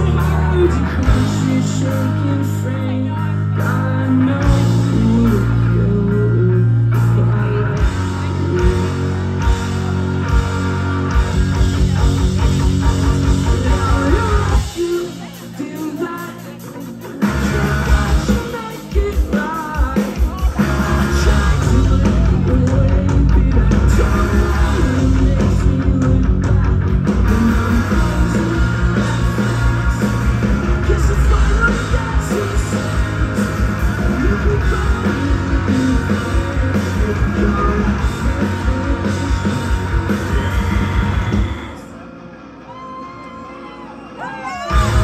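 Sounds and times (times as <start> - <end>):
live rock band playing: 0.0 - 45.0.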